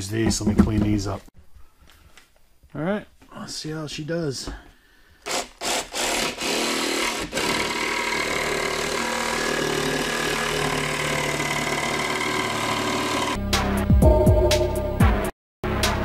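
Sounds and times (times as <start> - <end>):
jigsaw cutting wood: 5.2 - 13.4.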